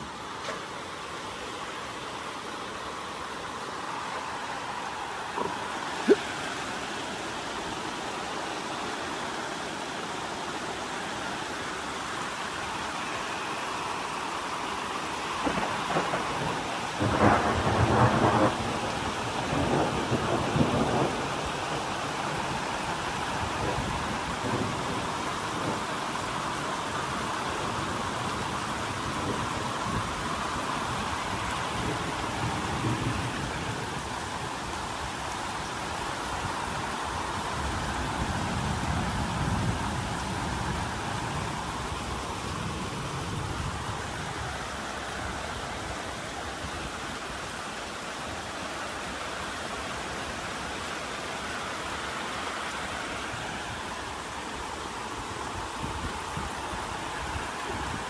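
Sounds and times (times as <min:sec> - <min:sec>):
heavy rain falling: 0:00.0 - 0:58.0
thunder rumbling: 0:15.4 - 0:21.8.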